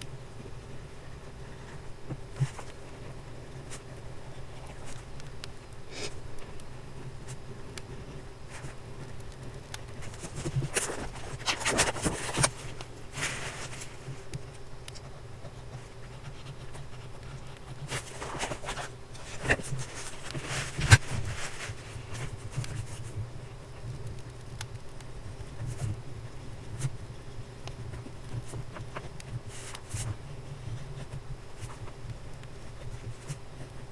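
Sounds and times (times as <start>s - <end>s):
faint low hum: 0.0s - 33.9s
pen scratching on paper: 15.0s - 19.9s.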